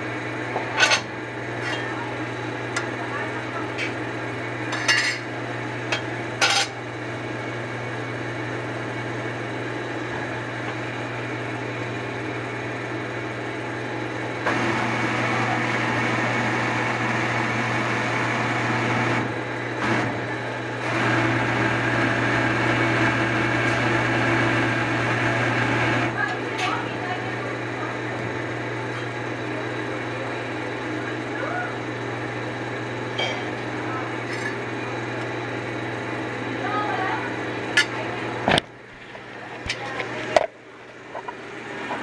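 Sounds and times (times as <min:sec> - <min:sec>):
low machine hum: 0:00.0 - 0:42.0.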